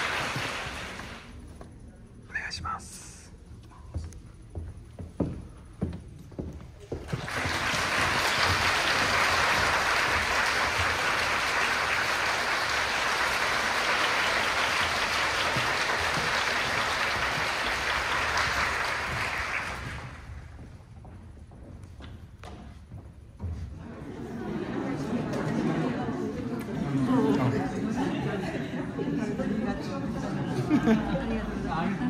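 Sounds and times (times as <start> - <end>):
audience applauding: 0.0 - 1.4, 7.0 - 20.6.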